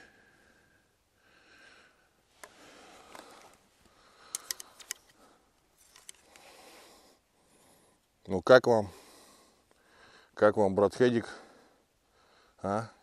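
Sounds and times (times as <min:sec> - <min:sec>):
light sharp clicks: 0:03.1 - 0:05.2.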